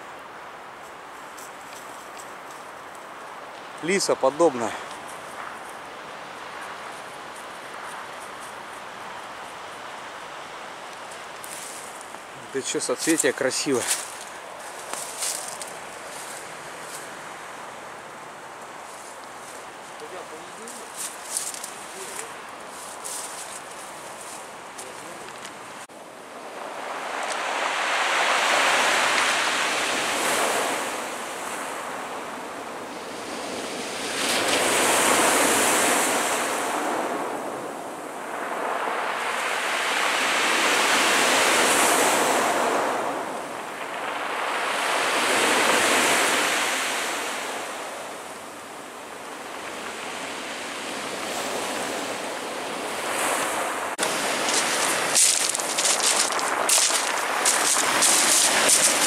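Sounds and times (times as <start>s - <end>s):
waves breaking on shore: 0.0s - 59.0s
sharp crackles: 54.0s - 59.0s.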